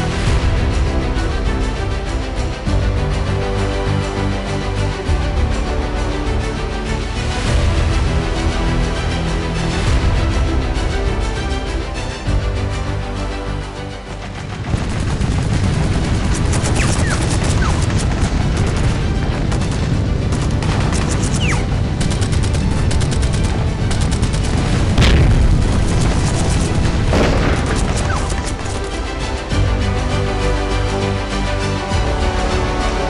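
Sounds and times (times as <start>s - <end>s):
background music: 0.0s - 33.0s
rifle and machine-gun fire: 14.7s - 21.3s, 22.0s - 29.0s
explosion booms: 24.5s - 28.8s.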